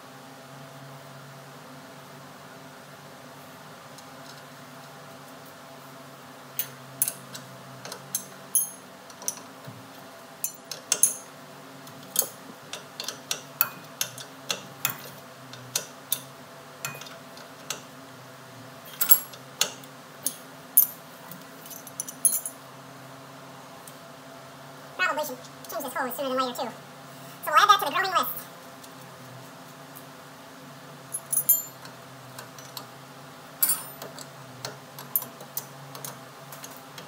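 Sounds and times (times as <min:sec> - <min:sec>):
metal wrench clinking on fitting: 0:08.1 - 0:09.4, 0:10.4 - 0:11.3, 0:21.7 - 0:22.6, 0:33.6 - 0:34.1.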